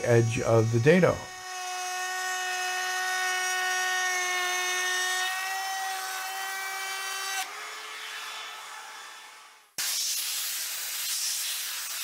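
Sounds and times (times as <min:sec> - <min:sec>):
trim router whining: 0:00.0 - 0:09.6.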